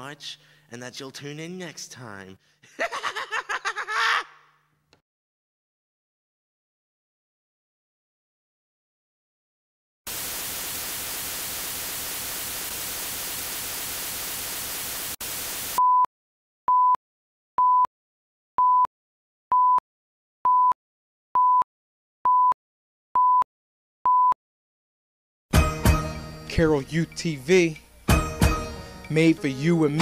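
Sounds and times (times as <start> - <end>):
video static hiss: 10.1 - 15.8.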